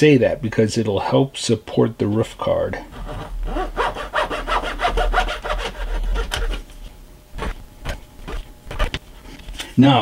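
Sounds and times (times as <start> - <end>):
wood being sawn by hand: 2.9 - 6.6, 7.4 - 9.0.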